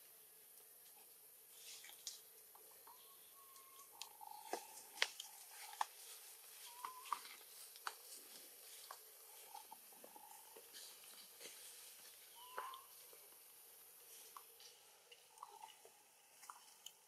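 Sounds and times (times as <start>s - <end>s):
faint whistle-like tone: 2.9s - 4.0s, 6.6s - 7.2s, 12.3s - 13.0s
rustling over dry leaves: 4.2s - 15.0s.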